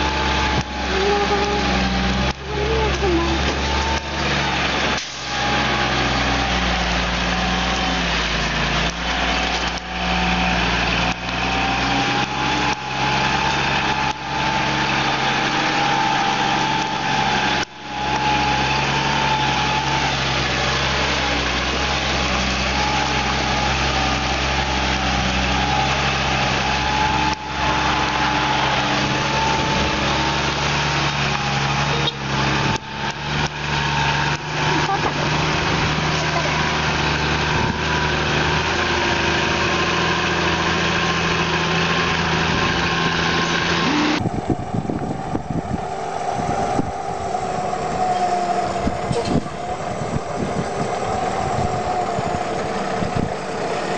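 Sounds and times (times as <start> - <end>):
diesel truck engine running: 0.0 - 53.9
steady high whine: 41.3 - 53.9.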